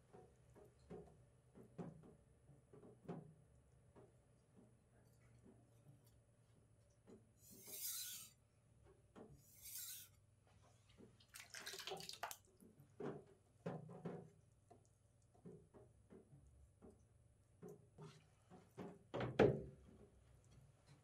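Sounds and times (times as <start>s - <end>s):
knife scraping on wet whetstone: 7.5s - 8.3s, 9.5s - 10.1s.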